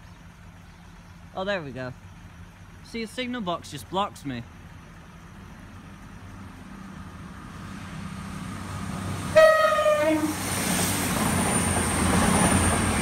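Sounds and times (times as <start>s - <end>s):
train passing at speed: 5.0s - 13.0s
two-note train horn: 9.3s - 10.4s.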